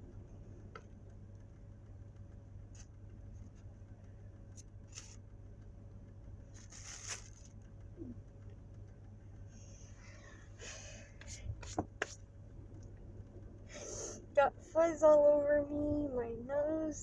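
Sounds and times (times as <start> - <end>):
steady low hum: 0.0 - 17.0
scratching and handling noises: 2.6 - 5.7, 6.4 - 9.0, 11.0 - 13.0.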